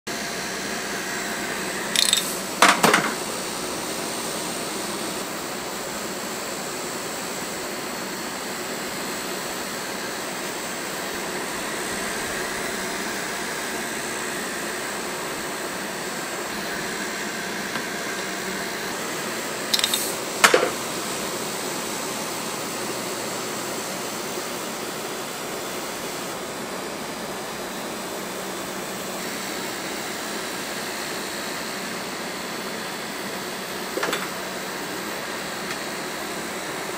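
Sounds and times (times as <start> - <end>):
cotton candy machine whirring: 0.3 - 4.7, 9.6 - 36.9
metal scoop clicks: 2.0 - 2.4, 19.7 - 20.2.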